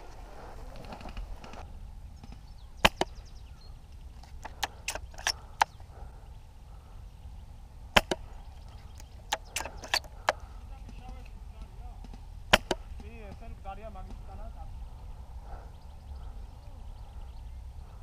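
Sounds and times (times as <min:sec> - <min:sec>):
airsoft gun shots: 0:02.8 - 0:03.2, 0:07.9 - 0:08.3, 0:09.3 - 0:10.4, 0:12.5 - 0:13.5.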